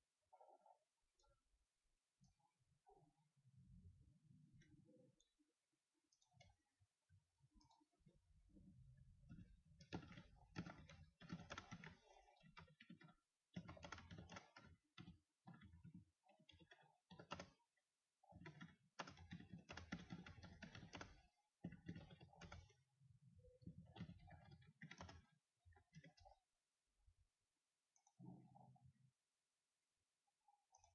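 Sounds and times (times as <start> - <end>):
faint keyboard typing: 9.2 - 22.9, 23.5 - 26.5, 30.5 - 30.9.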